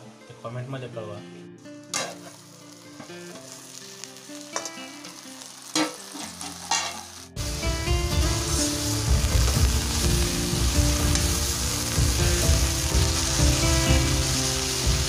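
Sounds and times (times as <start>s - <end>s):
greens sizzling in oil: 1.7s - 15.0s
spoon clinking and scraping on pan: 4.6s - 7.2s.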